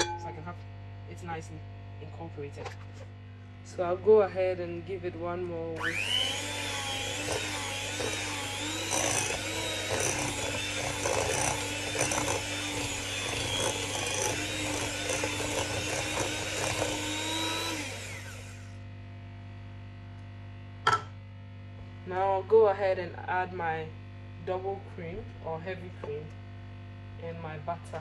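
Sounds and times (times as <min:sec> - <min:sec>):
electric hand mixer whine: 0:05.8 - 0:18.8.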